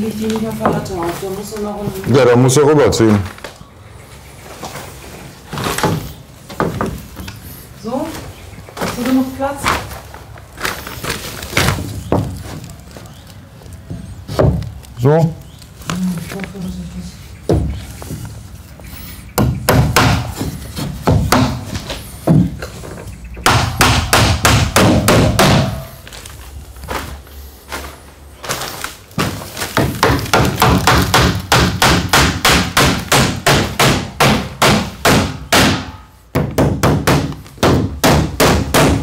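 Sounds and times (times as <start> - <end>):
hammer driving nails into wood: 23.4 - 25.9, 29.8 - 39.0.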